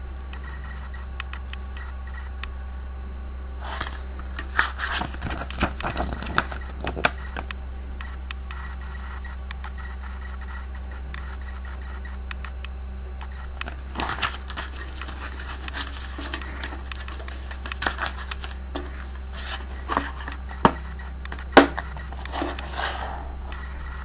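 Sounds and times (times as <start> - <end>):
steady low hum: 0.0 - 24.0
plastic case rustling and clicking: 3.7 - 7.6, 13.6 - 23.0.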